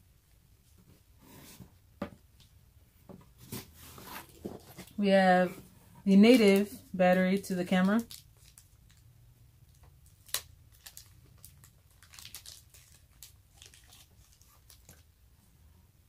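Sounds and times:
plastic wrapping crinkling: 6.1s - 15.1s.

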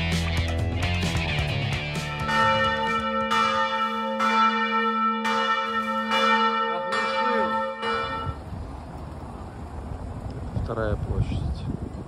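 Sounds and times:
church bell tolling: 1.9s - 8.5s.

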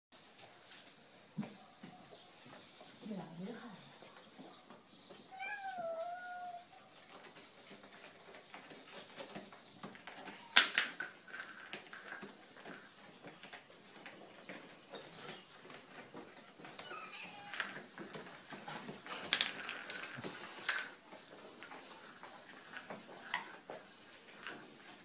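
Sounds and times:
cat meowing: 5.3s - 6.7s, 16.8s - 17.8s
clicks and scuffs on tile floor: 5.9s - 25.0s.

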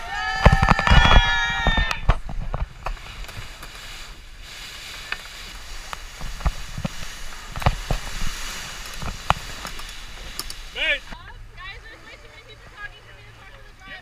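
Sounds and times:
water rushing past boat: 0.0s - 14.0s
wind: 0.0s - 14.0s.

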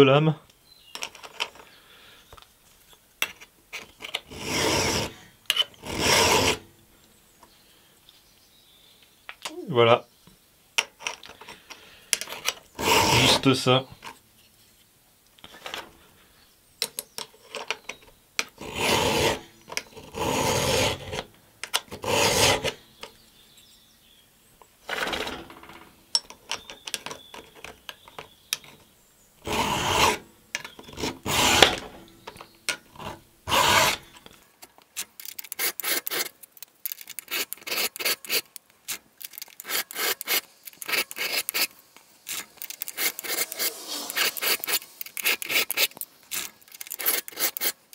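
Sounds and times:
file rasping on saw chain: 4.3s - 6.6s, 12.8s - 13.5s, 18.6s - 21.2s, 21.9s - 22.8s, 29.4s - 31.9s, 33.0s - 34.0s, 35.5s - 36.3s, 37.2s - 38.5s, 39.6s - 41.7s, 42.3s - 47.8s.

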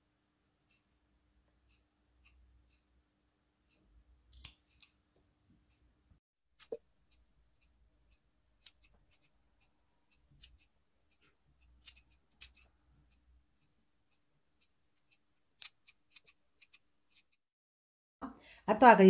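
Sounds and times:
scissors snipping: 4.3s - 5.0s, 8.6s - 9.4s, 10.2s - 12.7s, 14.9s - 17.4s.

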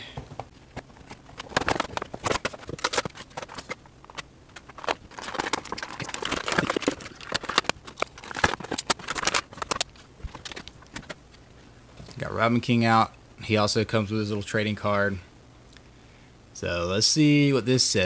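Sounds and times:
scattered clicks and taps: 0.3s - 11.2s
plastic packaging crackling: 0.6s - 11.4s.

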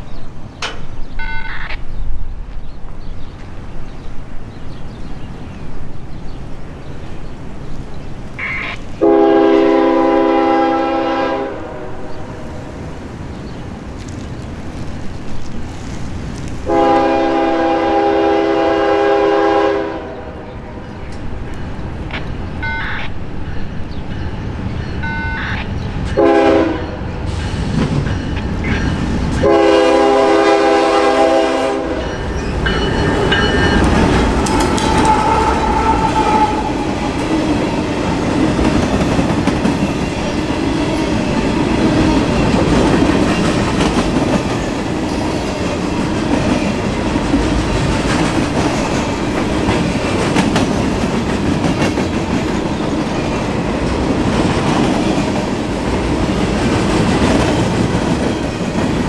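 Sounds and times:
freight cars rumbling over rails: 1.9s - 59.0s
locomotive horn chord: 9.0s - 12.1s, 16.7s - 20.3s, 26.2s - 26.9s, 29.4s - 32.2s.

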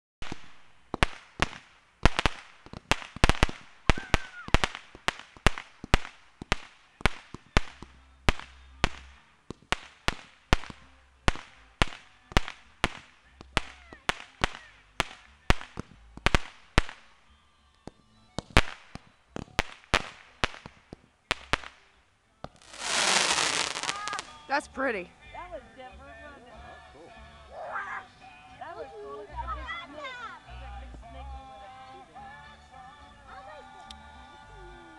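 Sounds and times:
fireworks bangs: 0.2s - 17.1s, 18.4s - 21.9s, 22.5s - 24.5s.

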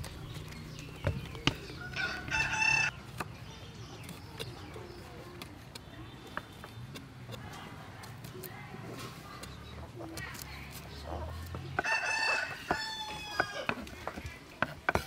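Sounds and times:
rooster crowing: 1.8s - 2.9s, 11.8s - 13.8s
cleaver chopping on wooden board: 11.4s - 15.0s.

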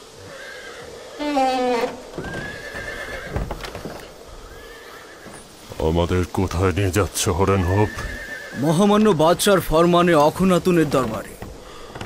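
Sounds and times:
horse whinnying: 0.3s - 3.6s, 7.6s - 8.8s.

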